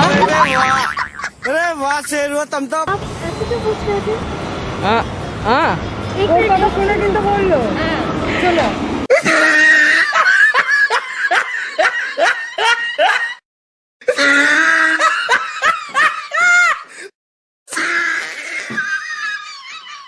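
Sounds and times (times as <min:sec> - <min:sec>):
people laughing: 0:00.0 - 0:02.4, 0:08.3 - 0:13.4, 0:18.6 - 0:20.0
voices: 0:00.0 - 0:08.9.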